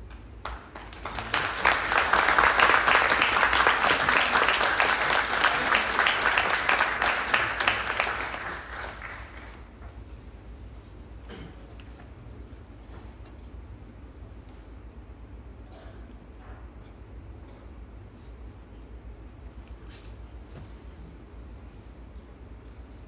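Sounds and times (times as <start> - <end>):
audience applauding: 0.4 - 9.8.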